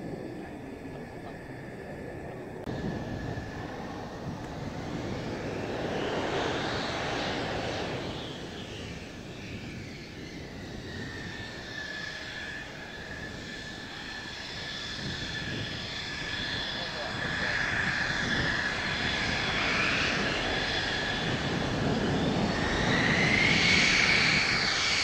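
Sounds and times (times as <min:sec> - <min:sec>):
high turbine whine: 0:00.0 - 0:25.0
jet engine running: 0:00.0 - 0:25.0.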